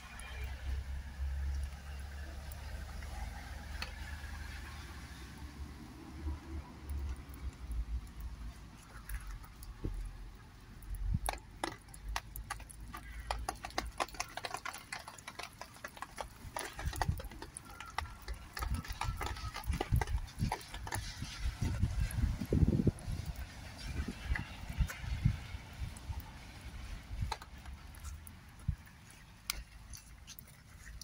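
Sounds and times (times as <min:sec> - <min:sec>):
sharp irregular clicks: 0:06.8 - 0:22.1, 0:23.2 - 0:31.0
wind rumble on microphone: 0:18.0 - 0:28.9.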